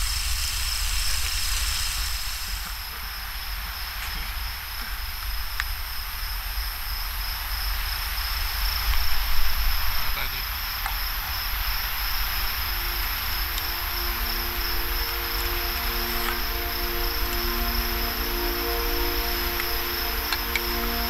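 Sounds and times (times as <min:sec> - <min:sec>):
crickets chirping: 0:00.0 - 0:21.0
low rumble: 0:11.3 - 0:21.0.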